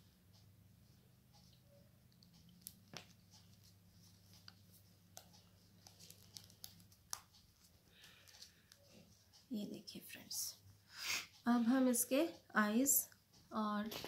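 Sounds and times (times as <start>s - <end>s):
faint rustling of handling: 0.8s - 9.5s.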